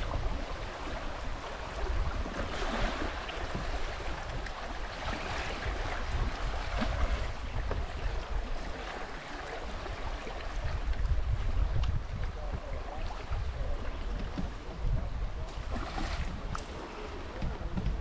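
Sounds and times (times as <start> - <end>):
river water rushing: 0.0 - 10.6, 15.6 - 17.4.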